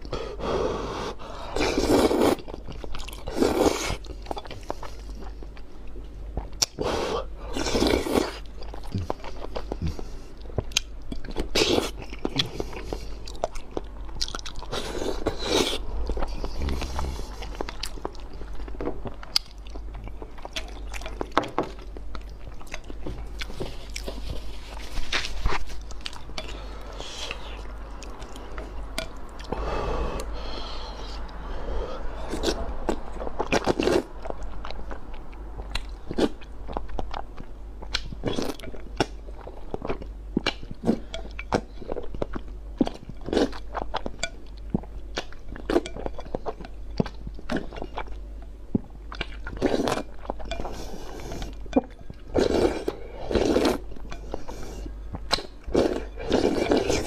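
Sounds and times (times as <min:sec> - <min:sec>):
person slurping noodles: 0:00.4 - 0:02.4, 0:16.4 - 0:17.6, 0:55.7 - 0:57.0.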